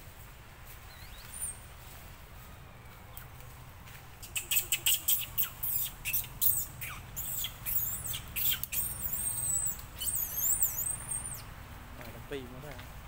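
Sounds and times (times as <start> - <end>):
baby monkey squealing: 4.2 - 11.5.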